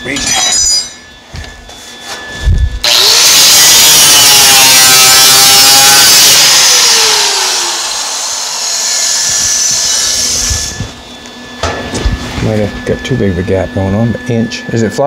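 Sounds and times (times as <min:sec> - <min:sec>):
angle grinder grinding metal: 0:02.8 - 0:11.3.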